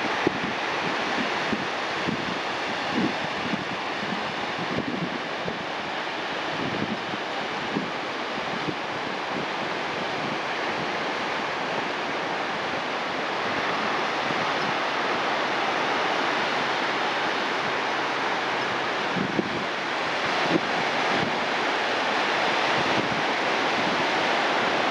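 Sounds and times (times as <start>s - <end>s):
surf washing over pebbly shore: 0.0s - 24.9s
wind on microphone: 0.0s - 24.9s.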